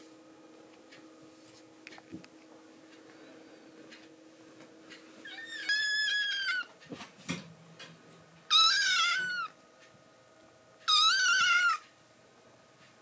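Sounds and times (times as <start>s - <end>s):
kitten meowing: 5.3s - 6.7s, 8.5s - 9.6s, 10.9s - 11.8s.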